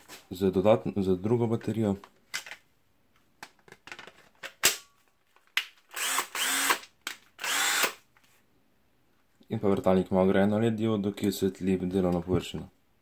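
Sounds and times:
cordless drill motor spinning: 5.9 - 8.0.

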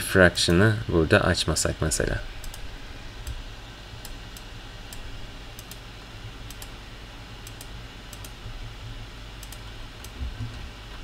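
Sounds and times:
low steady hum: 0.0 - 11.0
computer mouse clicking: 2.4 - 3.4, 4.0 - 5.8, 6.4 - 6.8, 7.4 - 8.4, 9.4 - 10.2.

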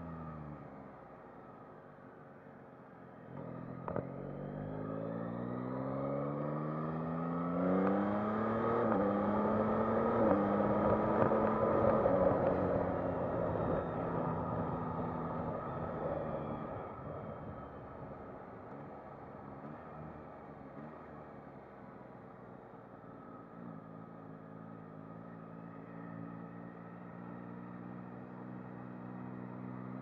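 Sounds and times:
motorcycle engine accelerating: 3.2 - 21.6.

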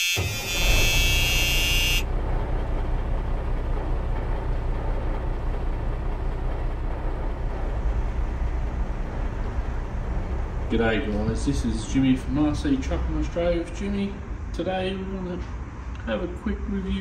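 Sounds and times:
loud multi-tone horn blast: 0.0 - 2.1
steady low rumble: 0.3 - 16.8.

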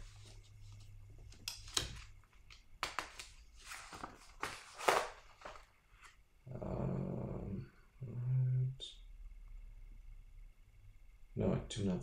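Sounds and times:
paper pages rustling: 0.0 - 6.2.

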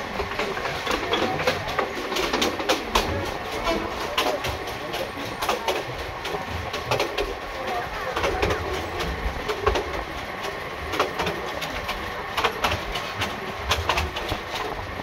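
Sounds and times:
train carriage rumbling on track: 0.0 - 15.0
wheels clacking over rail joints: 0.0 - 15.0.

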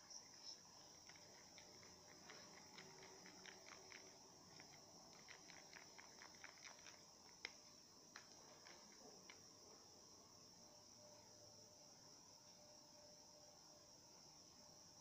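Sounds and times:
faint high-pitched hiss: 0.0 - 15.0
plastic spoon stirring slime: 0.9 - 9.4.

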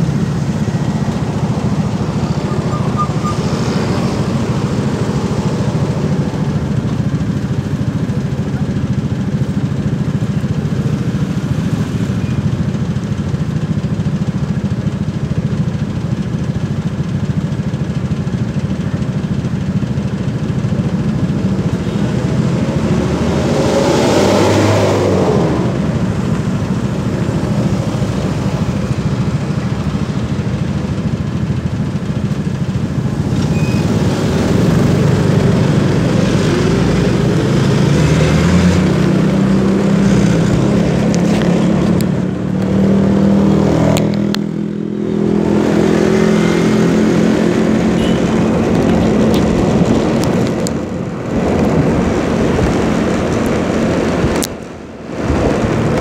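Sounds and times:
road traffic: 0.0 - 56.0
scooter engine noise: 0.0 - 56.0.

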